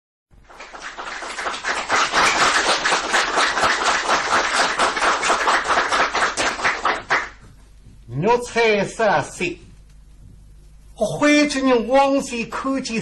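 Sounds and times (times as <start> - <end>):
audience applause: 0.4 - 7.4.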